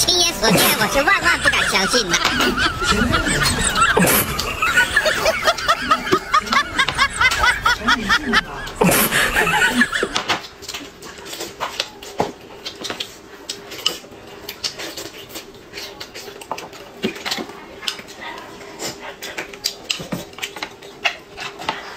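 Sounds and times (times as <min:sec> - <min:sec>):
loud rapid laughter: 0:00.0 - 0:10.4
chewing: 0:08.5 - 0:21.9.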